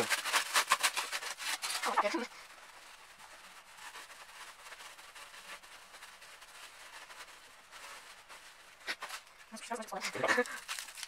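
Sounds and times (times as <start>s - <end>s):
foil and cloth crinkling: 0.0s - 11.0s.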